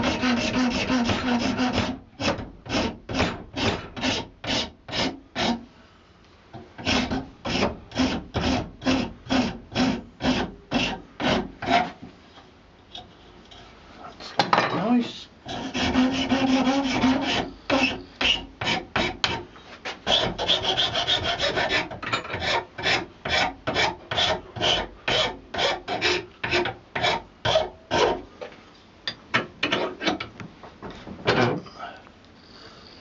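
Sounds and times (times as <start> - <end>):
hand file rasping across horn: 0.0 - 5.6, 6.8 - 12.0, 15.5 - 19.4, 20.0 - 28.2.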